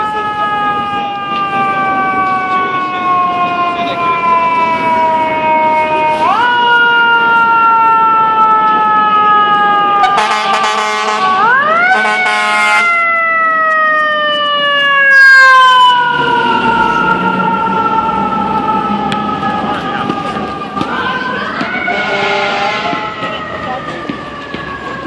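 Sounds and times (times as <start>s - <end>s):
fire engine siren wailing: 0.0s - 25.0s
air horn blasts: 10.0s - 13.0s, 21.9s - 23.1s.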